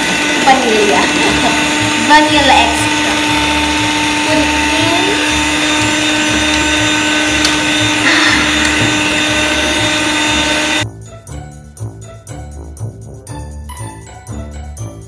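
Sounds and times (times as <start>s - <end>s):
electric hand mixer whirring: 0.0s - 10.8s.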